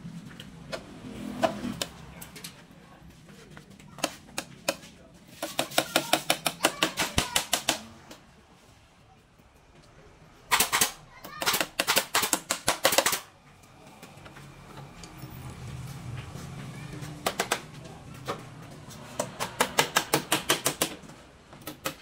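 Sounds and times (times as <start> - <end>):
hammer tapping on bamboo: 4.0 - 8.2, 19.1 - 21.0.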